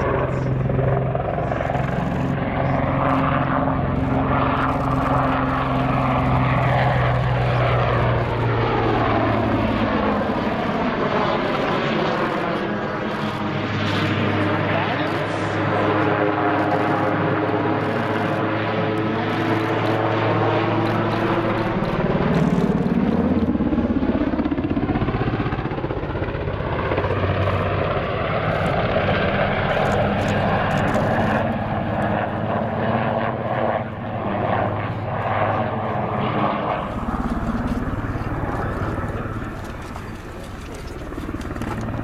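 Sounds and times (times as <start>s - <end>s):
helicopter rotor and turbine: 0.0s - 42.0s.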